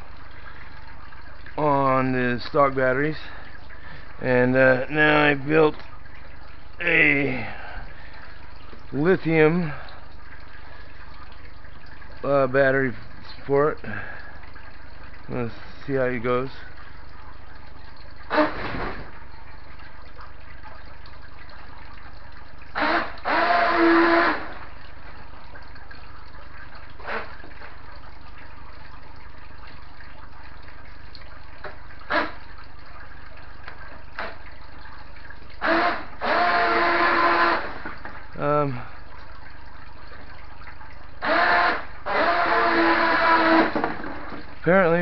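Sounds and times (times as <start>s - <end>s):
toy boat electric motor whirring: 22.8s - 24.6s, 35.6s - 37.8s, 41.2s - 43.9s.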